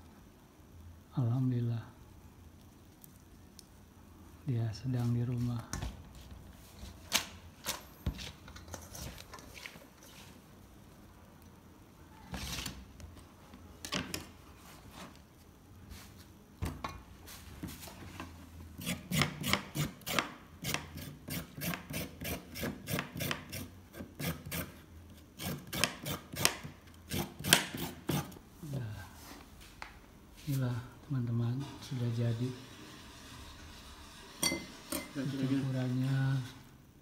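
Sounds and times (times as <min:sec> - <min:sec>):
knife slicing carrot on board: 0:25.4 - 0:28.4.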